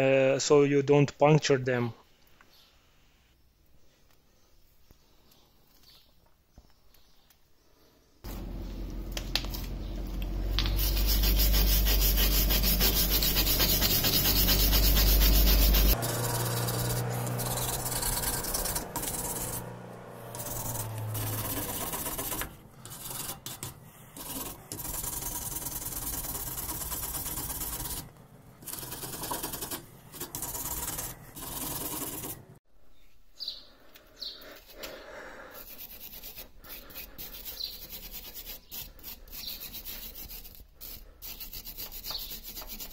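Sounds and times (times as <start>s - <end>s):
wire brush scraping metal: 10.6s - 32.4s.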